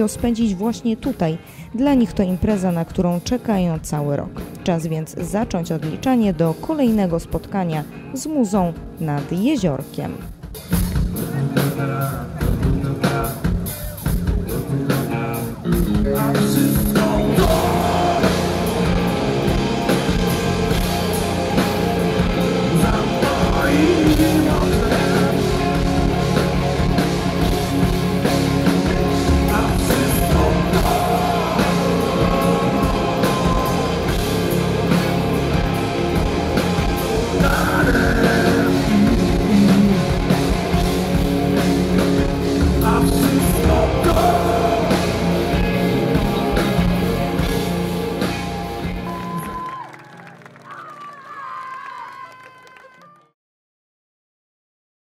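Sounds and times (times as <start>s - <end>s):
loud rock music with singer: 7.3s - 49.8s.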